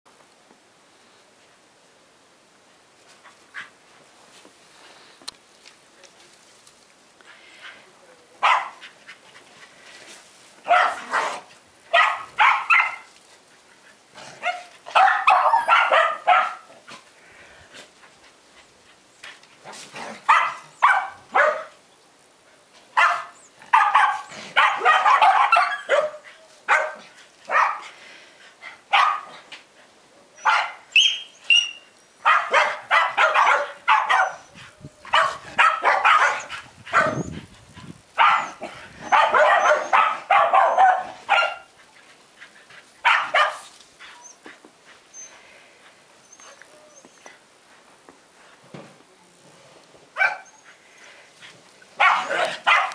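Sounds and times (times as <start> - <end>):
dog barking quickly: 10.7 - 11.4, 12.0 - 13.1, 14.4 - 16.7, 20.3 - 21.7, 23.0 - 27.9, 28.9 - 29.3, 32.3 - 34.4, 35.1 - 37.3, 38.2 - 41.7, 43.0 - 43.6, 52.0 - 52.9.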